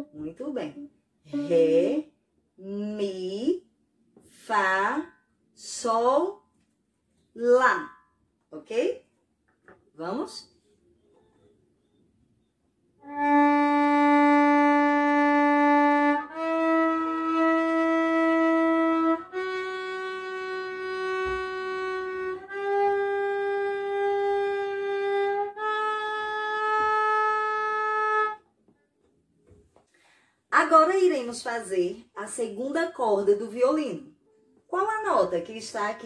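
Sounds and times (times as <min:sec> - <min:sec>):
violin playing long bowed notes: 0:13.0 - 0:28.4.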